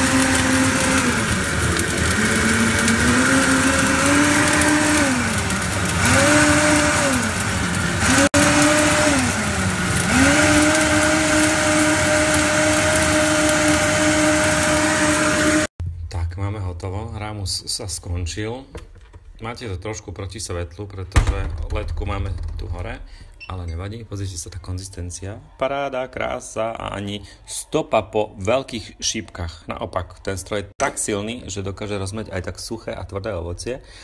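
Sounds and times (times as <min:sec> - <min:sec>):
blender motor running: 0:00.0 - 0:15.7.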